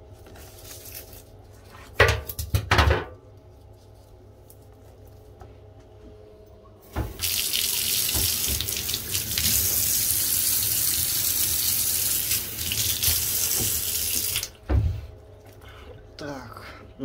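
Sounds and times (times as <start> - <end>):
water tap running: 6.8 - 14.6
water splashing into sink: 6.9 - 14.6.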